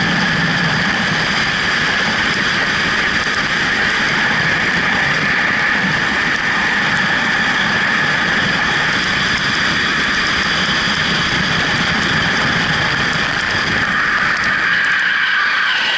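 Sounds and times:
high wind whistle: 0.0s - 15.9s
wind rushing over camera: 0.0s - 15.9s.

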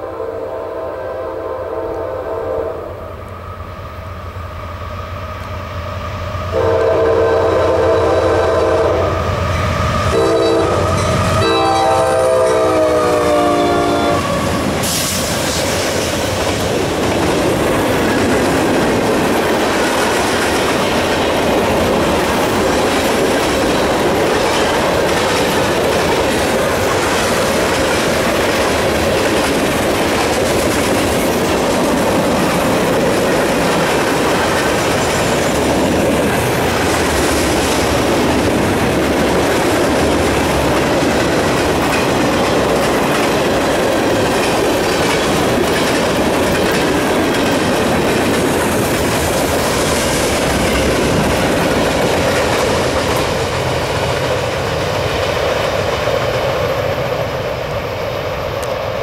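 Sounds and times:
locomotive air horn blasts: 0.0s - 3.0s, 6.5s - 9.2s, 10.1s - 14.6s
freight cars rumbling on rails: 3.2s - 59.0s.

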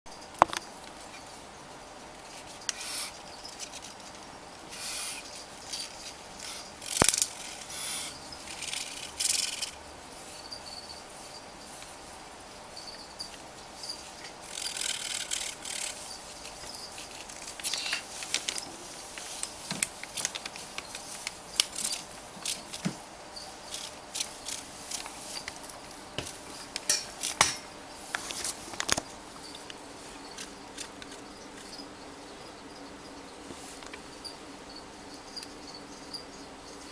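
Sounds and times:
sharp clicks and scrapes: 14.5s - 22.9s.

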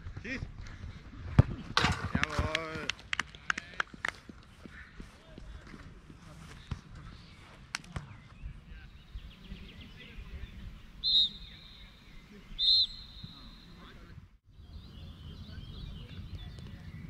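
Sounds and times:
low wind: 0.0s - 17.0s
field noise: 0.7s - 17.0s
pea whistle blasts: 11.0s - 11.9s, 12.6s - 13.8s.

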